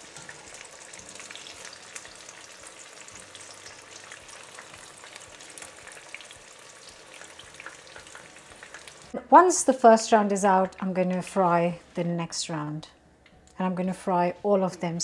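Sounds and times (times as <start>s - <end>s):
chicken deep-frying in oil: 0.0s - 9.2s.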